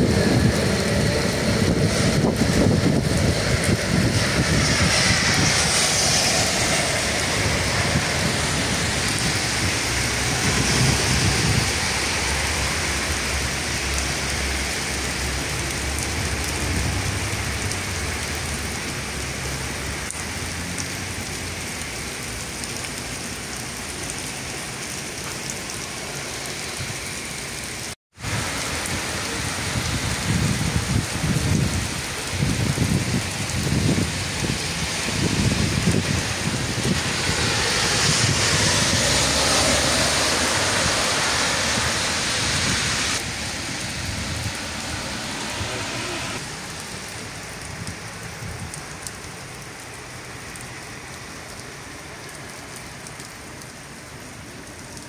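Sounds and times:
heavy rain splashing on pavement: 0.0s - 55.0s
low rumble: 35.6s - 46.4s.

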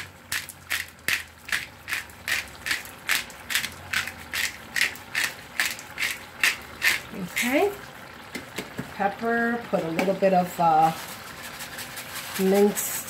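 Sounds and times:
pepper mill grinding: 0.0s - 7.6s, 10.8s - 13.0s.

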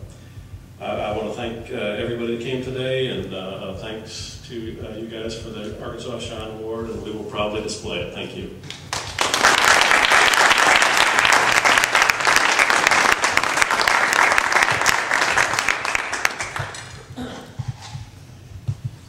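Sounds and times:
audience applauding: 8.7s - 17.2s.

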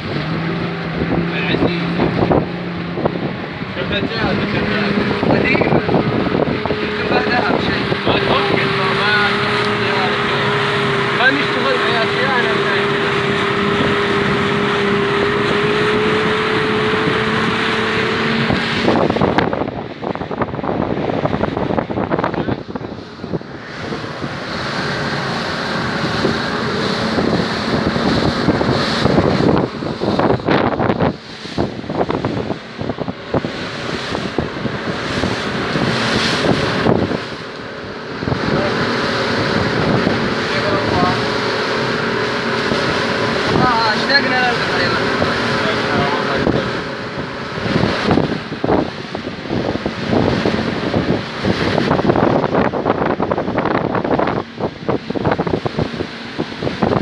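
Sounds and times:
boat engine drone: 0.0s - 57.0s
water rushing past hull: 0.0s - 57.0s
wind buffeting microphone: 0.0s - 57.0s.

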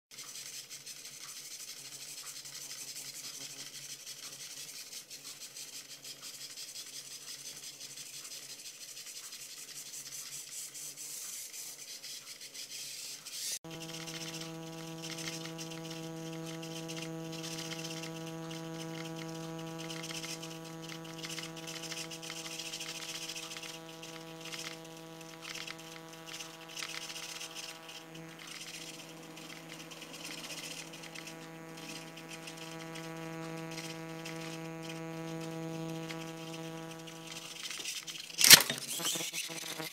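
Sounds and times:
servo motors whirring: 12.8s - 39.9s
steady low hum: 13.7s - 39.7s.

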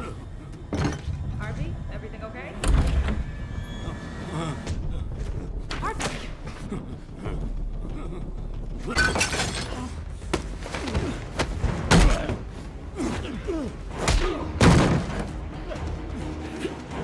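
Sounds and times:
men grunting: 4.2s - 9.1s, 10.7s - 14.6s.

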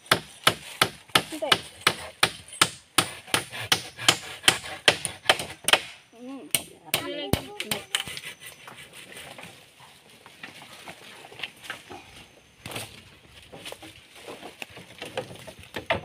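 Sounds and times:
hand saw cutting wood: 0.5s - 5.9s, 7.0s - 9.5s
wooden poles knocking and scraping: 12.6s - 16.0s.

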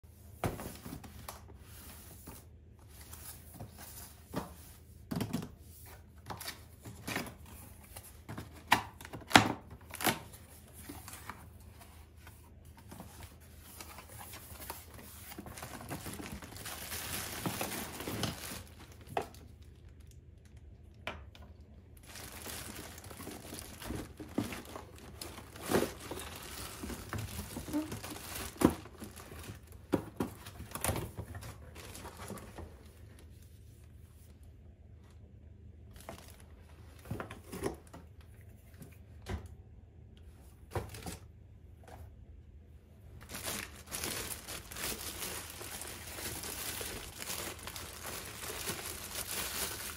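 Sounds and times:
cardboard rustling and tearing: 12.7s - 19.5s, 22.0s - 32.8s, 43.2s - 49.9s
plastic bag crinkling: 13.8s - 20.8s, 22.0s - 29.8s, 43.2s - 49.9s.

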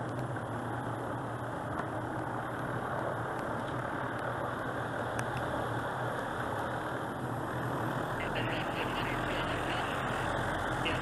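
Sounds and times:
large engine idling: 0.2s - 11.0s.

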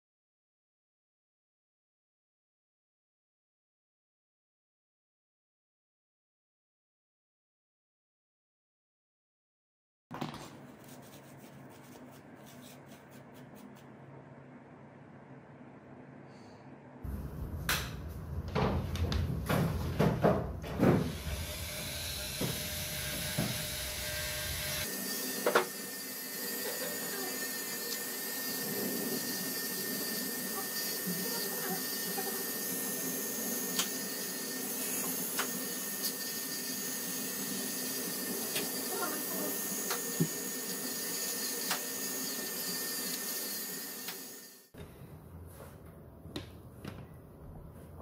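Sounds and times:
rotary tool grinding metal: 21.2s - 44.7s.

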